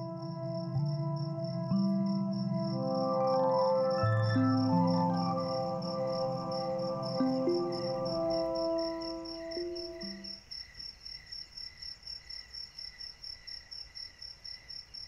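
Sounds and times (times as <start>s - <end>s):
held musical notes: 0.0s - 10.3s
crickets chirping: 0.0s - 15.0s.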